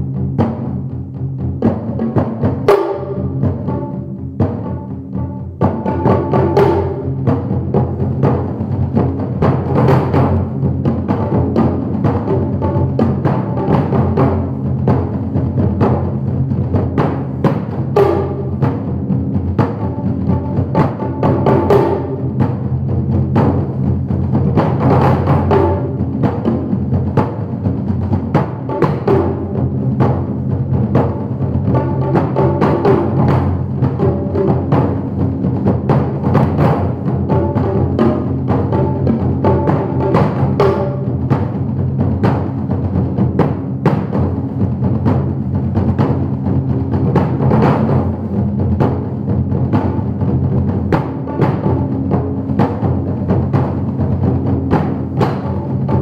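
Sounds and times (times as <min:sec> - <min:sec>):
drums struck with sticks: 0:00.0 - 0:56.0
ringing drum tones: 0:01.4 - 0:44.4.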